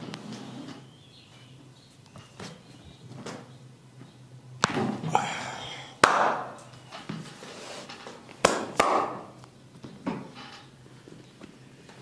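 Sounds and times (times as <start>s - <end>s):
percussive massage strikes: 6.0s - 6.6s, 8.4s - 9.3s.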